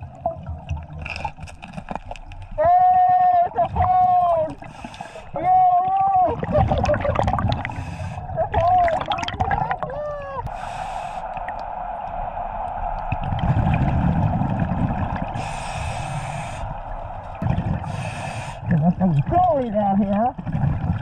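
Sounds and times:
exhaled air bubbling: 0.0 - 21.0
muffled vocal sounds: 2.6 - 7.5, 8.1 - 12.2
regulator inhale hiss: 4.6 - 5.4, 7.6 - 8.4, 10.5 - 11.4, 15.4 - 16.9, 17.8 - 18.7.

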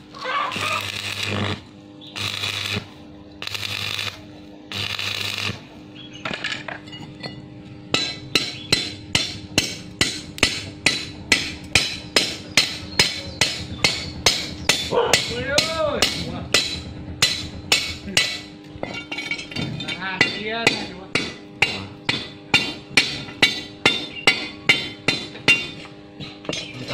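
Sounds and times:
hammer tapping on steel: 7.9 - 19.0.

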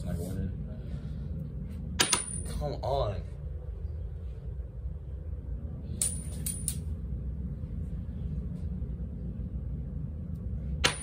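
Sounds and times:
steady low rumble: 0.0 - 11.0
coin clinking and ringing: 6.0 - 6.8.

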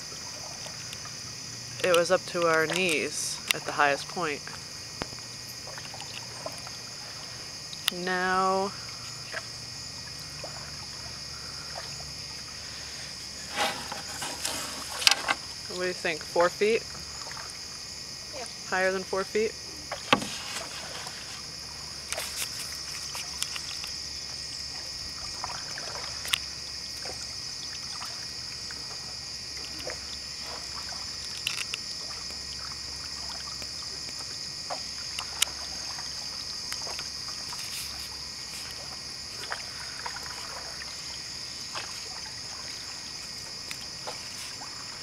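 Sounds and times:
paddle strokes in water: 0.0 - 17.9, 19.0 - 45.0
high-pitched insect chorus: 0.0 - 45.0
paddle knocking against hull: 13.4 - 15.6, 19.8 - 21.4.

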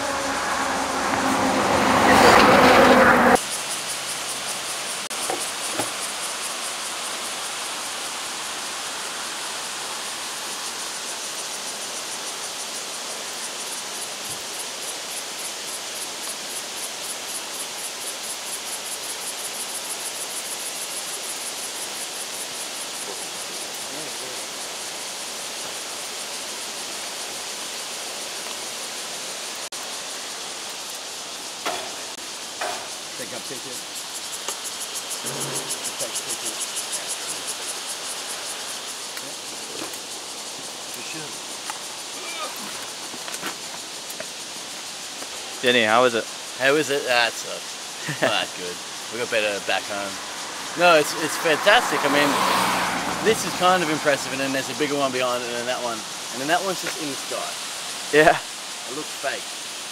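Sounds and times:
river rushing over rocks: 0.0 - 3.4
insects buzzing: 0.0 - 59.9.

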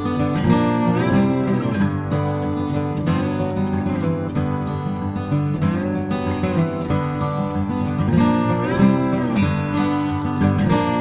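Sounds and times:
acoustic guitar music: 0.0 - 11.0.

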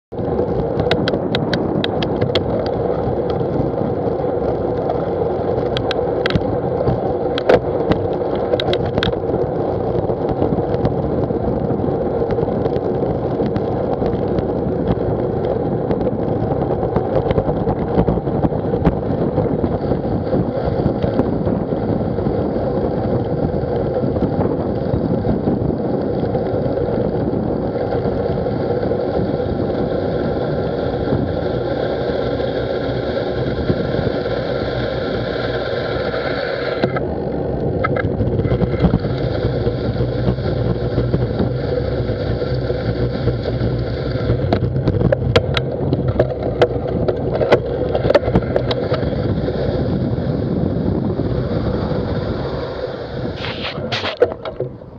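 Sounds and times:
bicycle road and wind noise: 0.0 - 54.9
sharp ticks: 0.5 - 3.8, 4.7 - 11.0.

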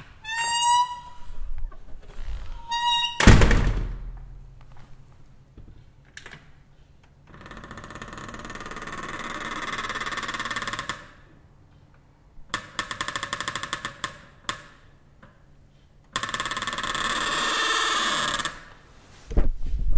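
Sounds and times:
metal door creaking: 0.0 - 4.4.

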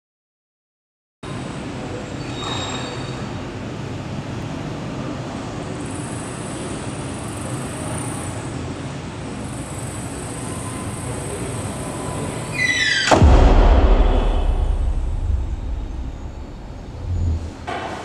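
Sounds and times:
steady rumbling ambient noise: 12.8 - 17.7.

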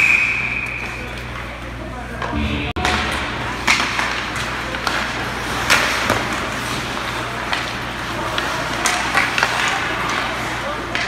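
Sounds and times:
hockey sticks and puck knocking: 4.9 - 10.2.

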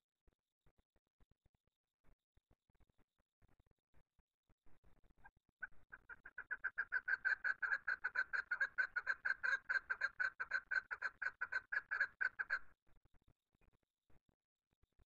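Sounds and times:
partridge calling: 5.6 - 12.7.

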